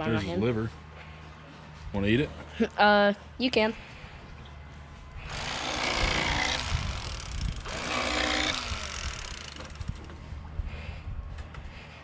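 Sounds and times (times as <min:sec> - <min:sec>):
electric fillet knife buzzing: 0:05.3 - 0:10.0.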